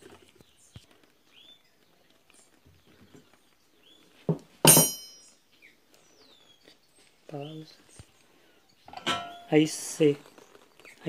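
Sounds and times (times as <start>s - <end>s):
wrench clanking among metal tools: 4.6s - 5.3s, 8.9s - 9.6s
faint bird chirps: 5.1s - 11.0s.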